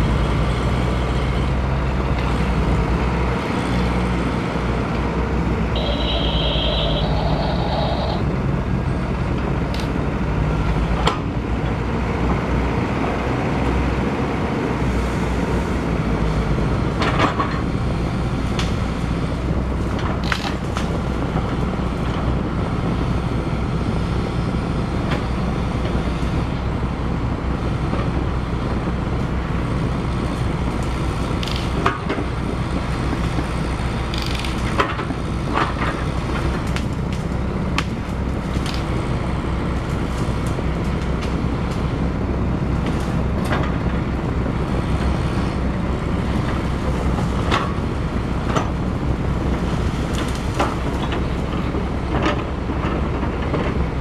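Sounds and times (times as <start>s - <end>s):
toy excavator motor drone: 5.8s - 8.2s, 34.1s - 34.6s
higher two-step tone: 5.8s - 8.3s.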